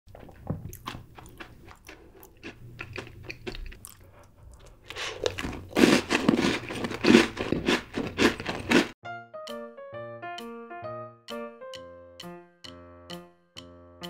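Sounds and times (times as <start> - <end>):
cookie crunching: 0.2 - 9.0.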